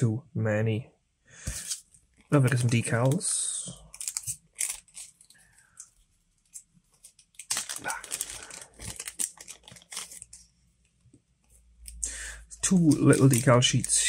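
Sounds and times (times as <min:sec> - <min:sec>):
plastic bag crinkling: 0:01.6 - 0:10.4, 0:11.9 - 0:14.0.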